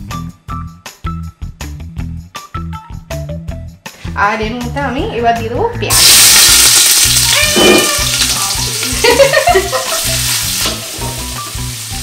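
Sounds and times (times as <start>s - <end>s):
background music with bass line: 0.0s - 12.0s
onions sizzling in hot oil: 5.9s - 12.0s.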